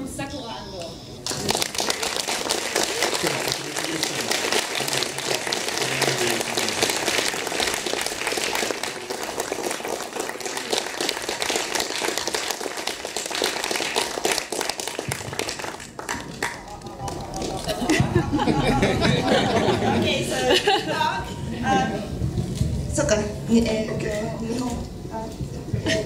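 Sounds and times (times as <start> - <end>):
audience applauding: 1.2 - 20.1.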